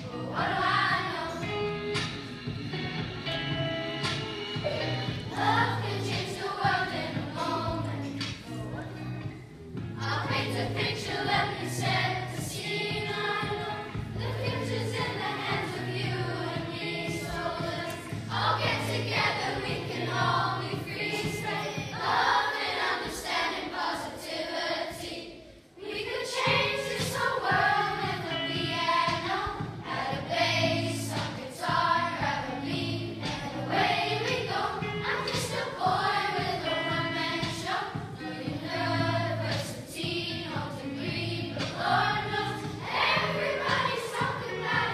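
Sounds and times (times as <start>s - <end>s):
children singing in unison: 0.0s - 1.6s, 5.3s - 8.1s, 10.0s - 44.9s
instrumental accompaniment: 0.1s - 22.3s.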